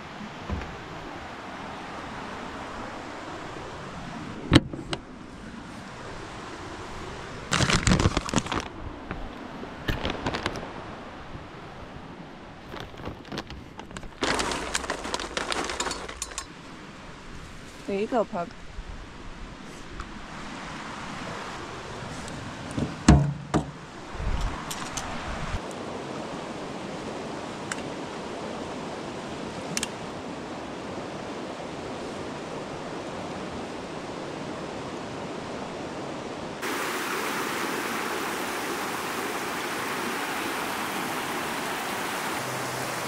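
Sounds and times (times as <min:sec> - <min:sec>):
knocks in metal locker: 0:23.1 - 0:23.8
river rushing over rocks: 0:36.6 - 0:43.0.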